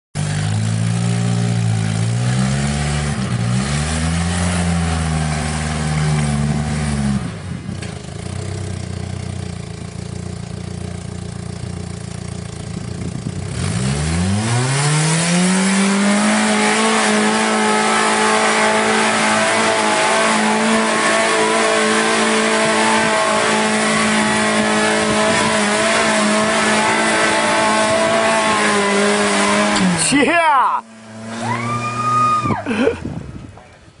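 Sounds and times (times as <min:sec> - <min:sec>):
buggy engine revving: 0:00.2 - 0:34.0.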